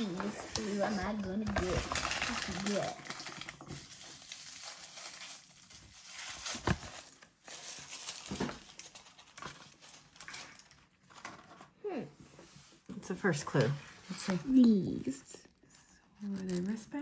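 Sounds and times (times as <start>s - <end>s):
wrapper crinkling: 0.0s - 11.6s, 14.1s - 17.0s.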